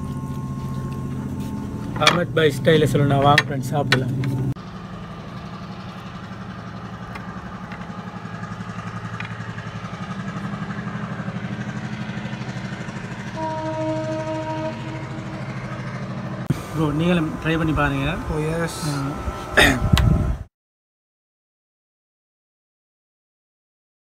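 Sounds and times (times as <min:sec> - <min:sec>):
held tone: 0:00.0 - 0:04.6
engine idling: 0:00.0 - 0:20.2.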